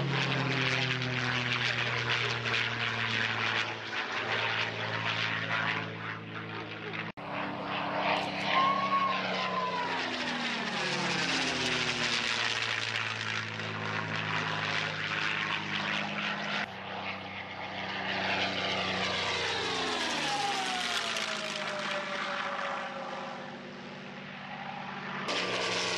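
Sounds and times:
propeller aircraft passing overhead: 0.0 - 25.9.

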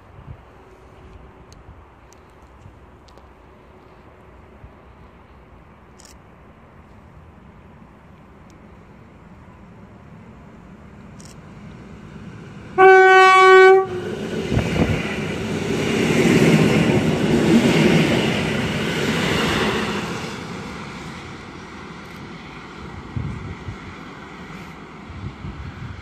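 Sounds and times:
train wheels on rails: 6.8 - 26.0
train horn blast: 12.8 - 14.2.

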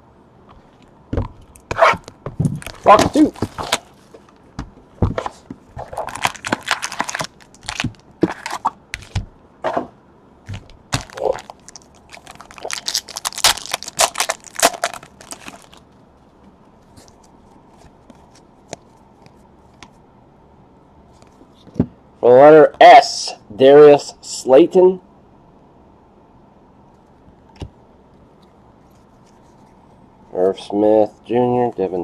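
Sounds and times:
plastic wrap and cardboard tearing: 1.8 - 4.3, 5.8 - 9.2, 10.5 - 15.8.

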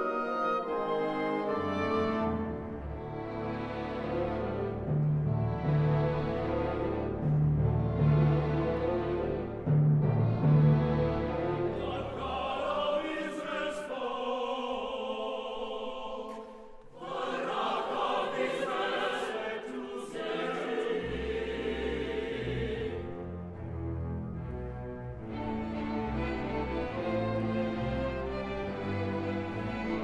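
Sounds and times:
orchestra playing: 0.0 - 12.4, 20.8 - 30.0
mixed choir singing: 11.7 - 23.3.

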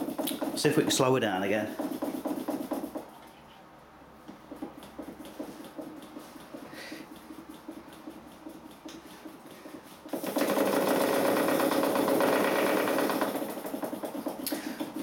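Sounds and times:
steam engine chuffing clatter: 4.9 - 15.0.

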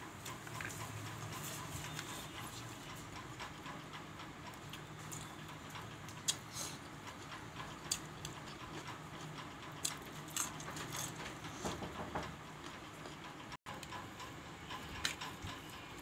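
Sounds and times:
person chewing: 7.6 - 8.8, 9.8 - 11.2.

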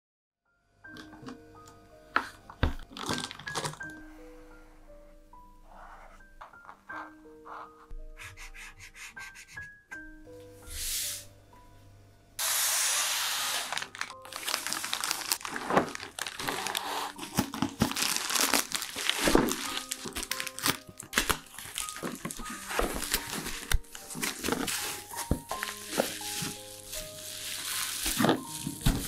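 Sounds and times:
soft background music: 0.5 - 29.0
plastic bag crinkling: 2.8 - 4.0, 13.2 - 29.0.

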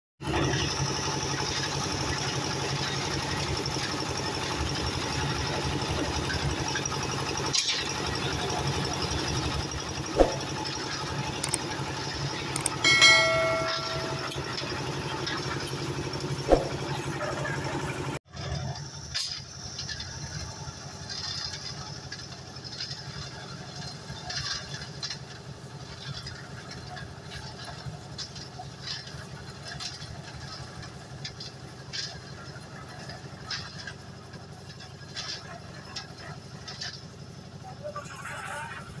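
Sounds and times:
concrete mixer engine hum: 0.2 - 39.0
sharp metal knocks: 10.2 - 10.6, 12.6 - 14.8, 16.5 - 16.9
metal clinks: 12.6 - 15.5
brief high tone: 12.8 - 14.7.

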